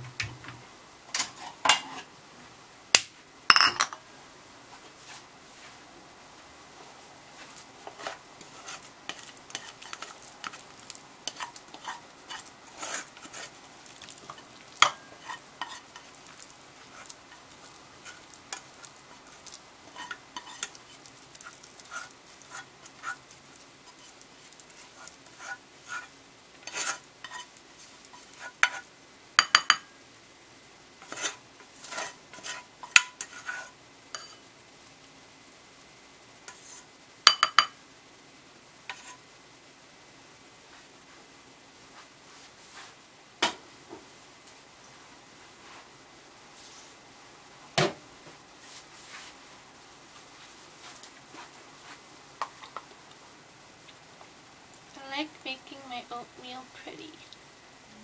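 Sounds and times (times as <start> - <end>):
spoon scraping in a pot: 1.2 - 2.1, 7.8 - 29.8, 31.0 - 34.4, 36.5 - 37.7, 38.9 - 39.2
utensil clinking on cookware: 3.5 - 4.0, 14.3 - 15.8, 29.4 - 29.9, 37.3 - 37.8.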